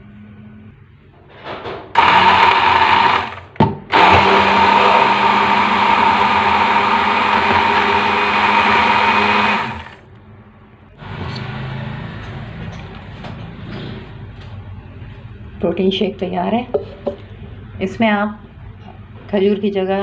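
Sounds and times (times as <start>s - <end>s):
blender click: 2.0s - 10.0s
stick blender running: 2.0s - 10.1s, 11.0s - 12.0s.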